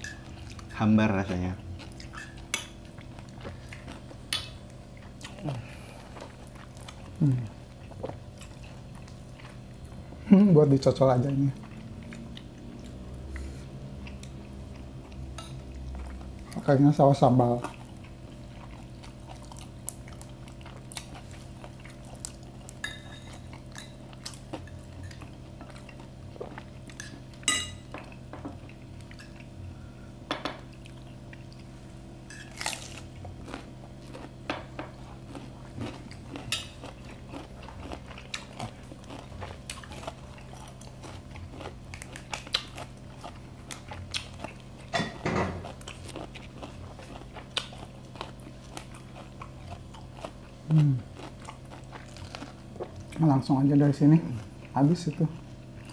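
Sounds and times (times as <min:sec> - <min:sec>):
chewing: 0:01.8 - 0:10.0, 0:11.2 - 0:16.6, 0:17.6 - 0:29.5, 0:32.5 - 0:44.9, 0:45.5 - 0:53.2
low hum: 0:21.7 - 0:44.2.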